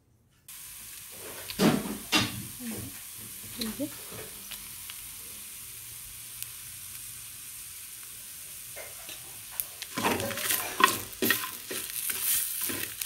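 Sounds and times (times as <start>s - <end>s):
faint steady hiss: 0.0s - 13.0s
spatula scraping iron pan: 9.9s - 13.0s.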